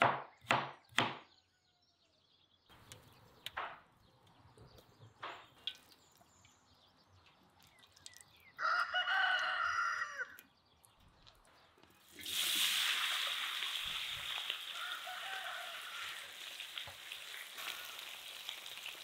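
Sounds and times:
rooster crowing: 0:08.6 - 0:10.4, 0:14.7 - 0:16.4.

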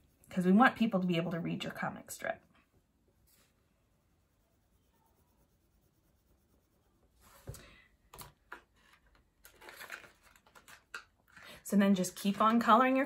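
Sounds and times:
crayon scratching on paper: 0:03.3 - 0:07.4.

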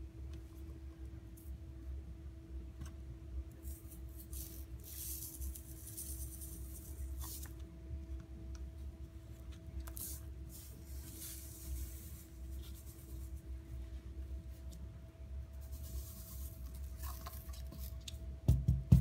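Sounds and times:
faint steady hum: 0:00.0 - 0:19.0
powder and paper cups rustling: 0:15.6 - 0:18.1.

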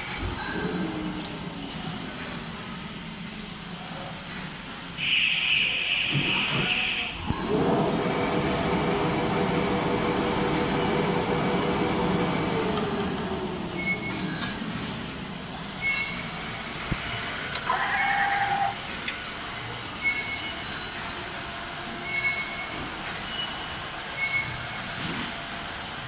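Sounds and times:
brief tone: 0:13.8 - 0:14.6, 0:15.8 - 0:16.2, 0:20.0 - 0:20.9, 0:22.0 - 0:24.8.

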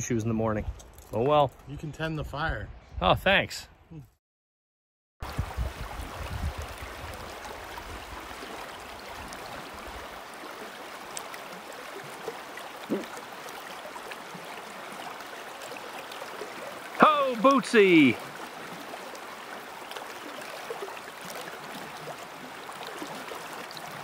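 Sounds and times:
creek water running: 0:05.2 - 0:24.0.

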